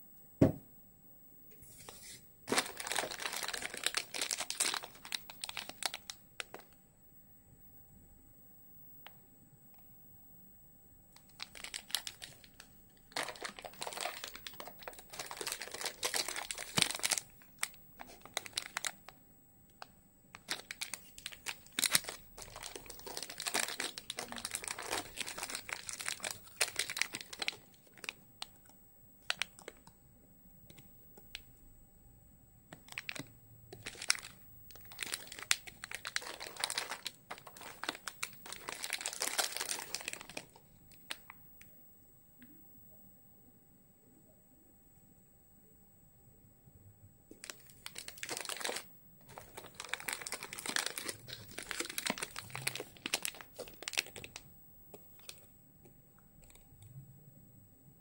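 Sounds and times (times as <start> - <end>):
plastic wrappers crinkling: 1.8 - 6.8, 11.2 - 19.2, 19.8 - 29.9, 32.7 - 41.4, 47.3 - 55.5, 56.4 - 56.6.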